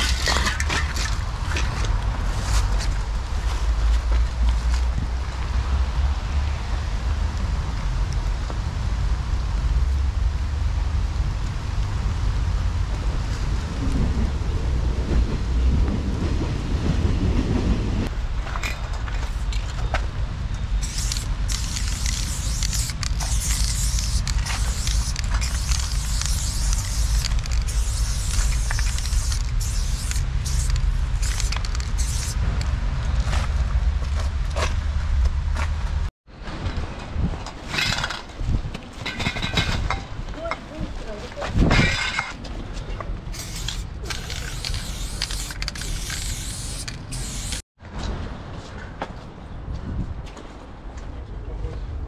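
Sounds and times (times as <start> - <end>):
steady low rumble: 0.0 - 40.3
spray paint can hissing: 20.8 - 32.5, 43.3 - 47.6.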